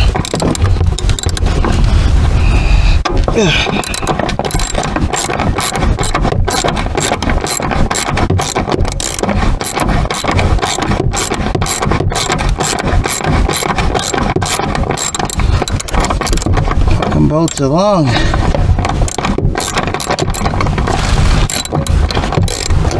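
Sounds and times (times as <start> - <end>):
socket ratchet clicking: 3.8 - 16.5, 19.1 - 20.6, 21.5 - 22.9.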